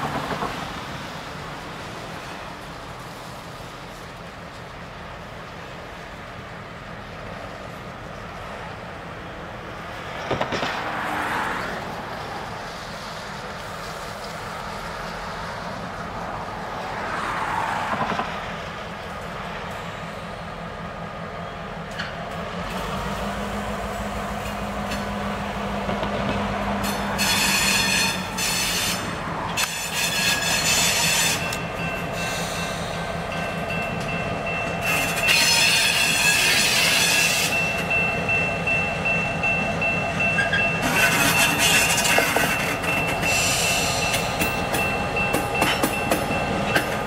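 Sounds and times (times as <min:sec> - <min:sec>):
diesel locomotive engine: 0:00.0 - 0:47.0
high-pitched wheel squeal: 0:26.8 - 0:33.0, 0:34.8 - 0:37.9, 0:39.9 - 0:46.4.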